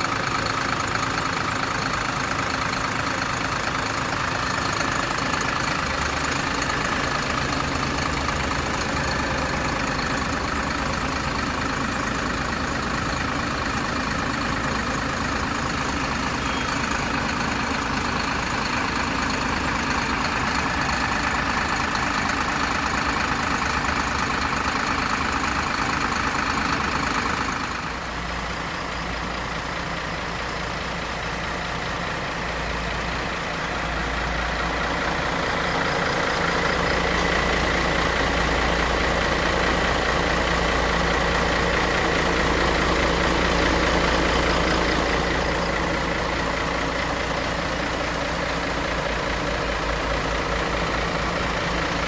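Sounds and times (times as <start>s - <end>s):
diesel engine idling: 0.0s - 52.0s.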